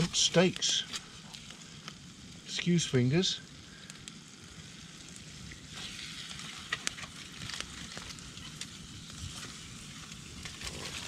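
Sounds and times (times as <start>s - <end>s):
steaks sizzling in frying pan: 4.1s - 11.0s.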